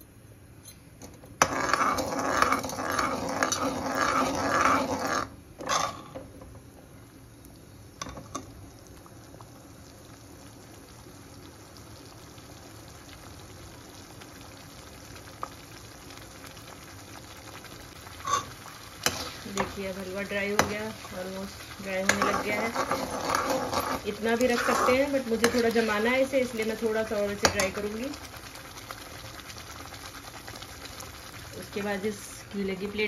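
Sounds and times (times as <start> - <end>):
faint bubbling hiss: 0.0 - 33.0
metal spoon scraping a pot: 1.4 - 6.0, 18.2 - 19.7, 22.0 - 26.1.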